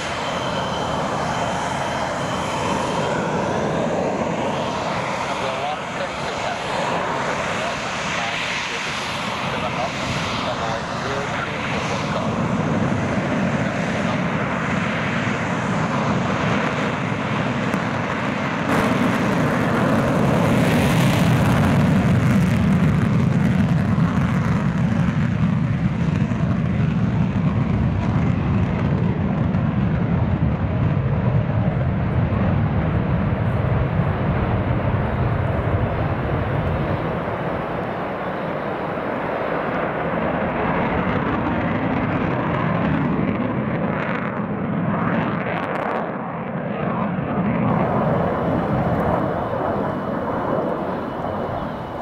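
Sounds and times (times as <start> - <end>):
fighter jet afterburner takeoff: 0.0 - 52.0.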